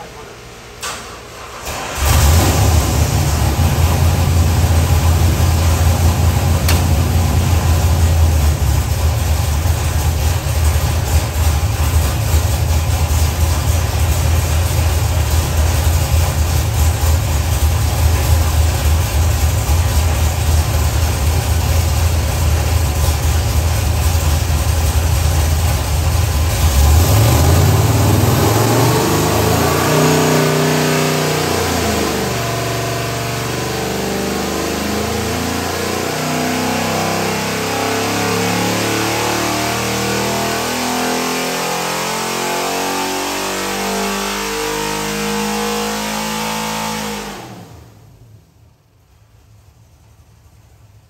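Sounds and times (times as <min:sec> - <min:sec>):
race engine revving: 0:01.6 - 0:12.2, 0:26.3 - 0:48.1.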